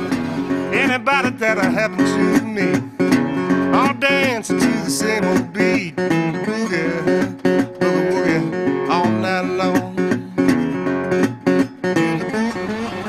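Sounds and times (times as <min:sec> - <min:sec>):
strummed acoustic guitar: 0:00.0 - 0:13.0
person singing: 0:00.5 - 0:10.9.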